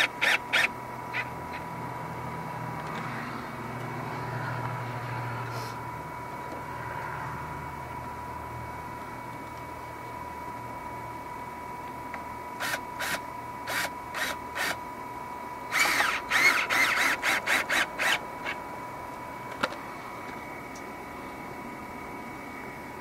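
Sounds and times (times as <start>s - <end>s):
cordless drill driving screws: 0.0s - 0.7s, 12.6s - 14.8s, 15.7s - 18.6s.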